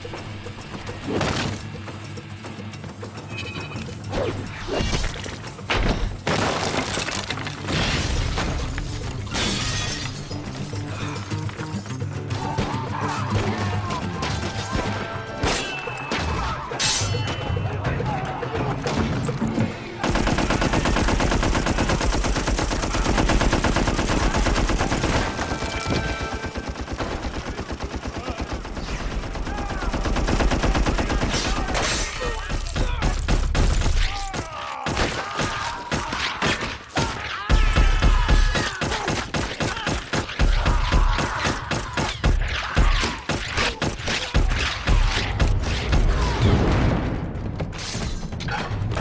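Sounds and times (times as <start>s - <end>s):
dramatic background music: 0.0s - 49.0s
wooden boards splintering and crashing: 5.7s - 8.8s
rapid machine-gun fire: 20.0s - 31.8s, 32.4s - 34.0s.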